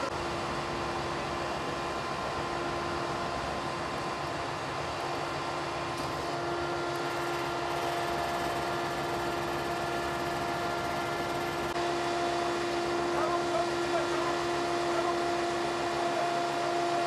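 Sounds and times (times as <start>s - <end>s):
machine hum with whine: 0.0s - 17.0s.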